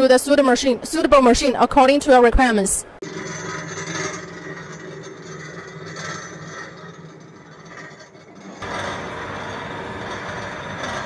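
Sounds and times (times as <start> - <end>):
oil press machine humming: 3.0 - 11.0.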